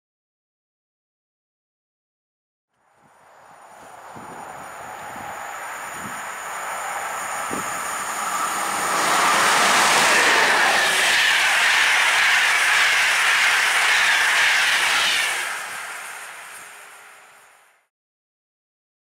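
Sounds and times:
train passing at speed: 2.8s - 17.9s.

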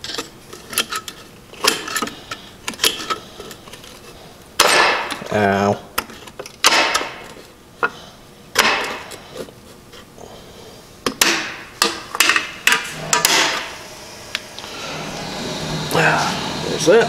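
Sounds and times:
steel scraping on steel: 14.6s - 17.0s.

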